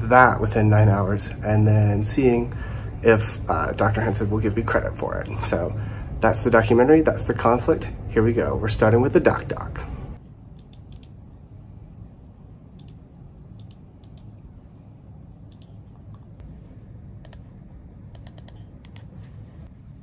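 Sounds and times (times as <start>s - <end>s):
low room hum: 0.0s - 20.0s
computer mouse clicking: 10.5s - 11.2s, 12.8s - 14.4s, 15.5s - 16.4s, 17.2s - 17.5s, 18.1s - 19.2s.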